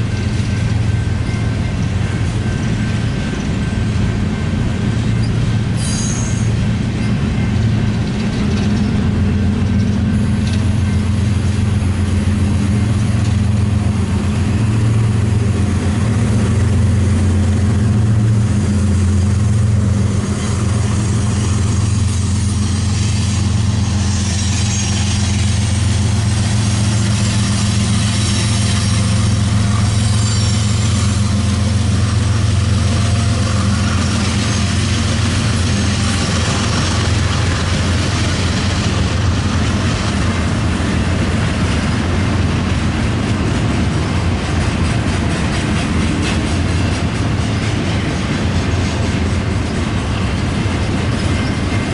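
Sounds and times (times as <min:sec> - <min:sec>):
train cars rumbling: 0:00.0 - 0:51.9
diesel engine hum: 0:06.6 - 0:46.1.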